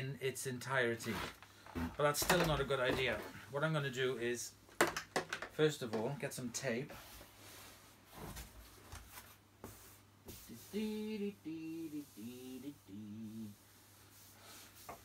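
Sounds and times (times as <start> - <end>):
man humming: 1.8 - 2.0, 10.6 - 13.6.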